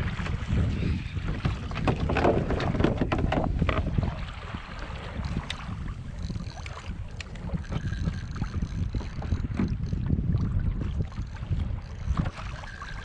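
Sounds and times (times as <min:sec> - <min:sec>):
water splashing against hull: 0:00.0 - 0:13.0
wind buffeting microphone: 0:00.0 - 0:13.0
knocks and rattles: 0:01.8 - 0:03.9.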